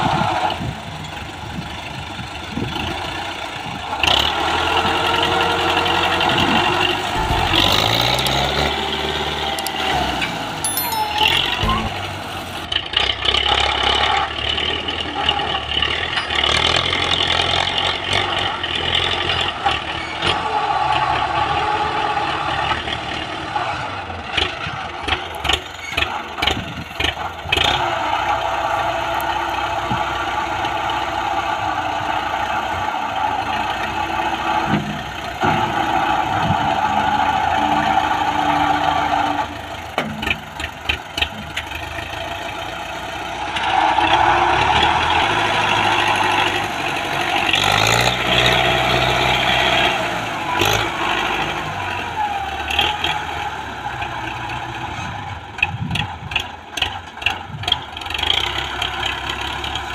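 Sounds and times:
tractor diesel engine running: 0.0 - 59.9
loader scraping loose dirt: 2.5 - 10.6, 11.3 - 59.9.

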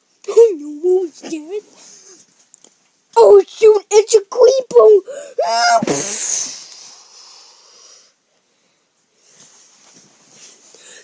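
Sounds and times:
child hissing: 5.0 - 8.2
child's short cry: 5.4 - 6.6.

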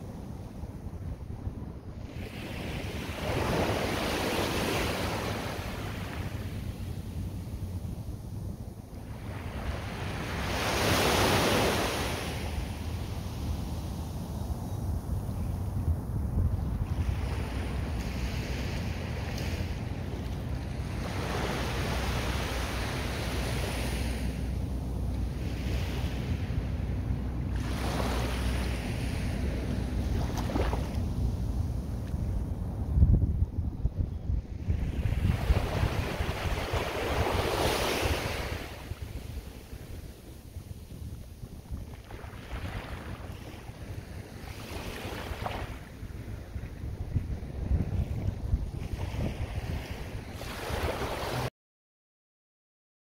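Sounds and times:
wind rumble on microphone: 0.0 - 51.5
waves washing up beach: 2.0 - 7.0, 9.0 - 15.1, 16.8 - 32.2, 34.6 - 40.9, 41.6 - 51.5.

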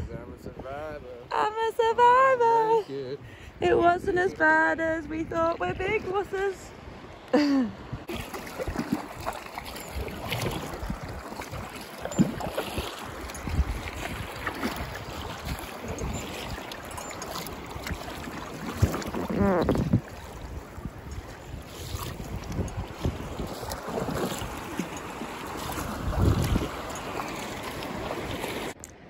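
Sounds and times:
wind on microphone: 0.0 - 1.2, 3.3 - 28.8
paddle strokes splashing: 8.0 - 28.8
water slapping a hull: 8.0 - 28.8.

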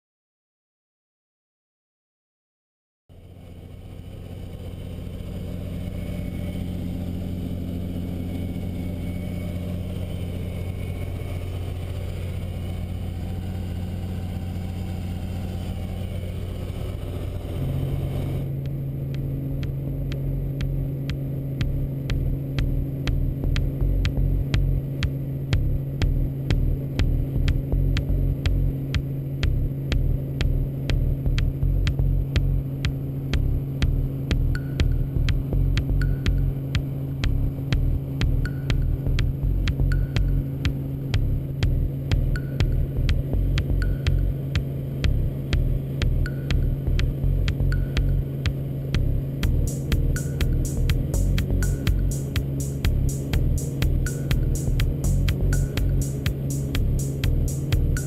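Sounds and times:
helicopter engine and rotor: 3.1 - 23.8, 24.8 - 27.7, 28.3 - 31.2, 32.2 - 39.4, 40.0 - 47.2, 47.9 - 58.0.

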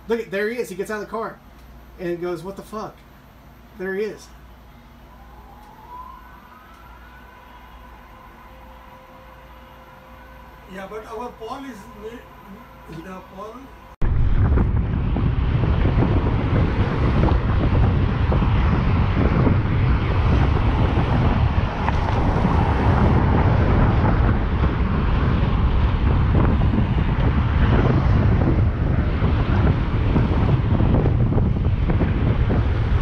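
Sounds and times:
wind buffeting microphone: 14.0 - 33.0.

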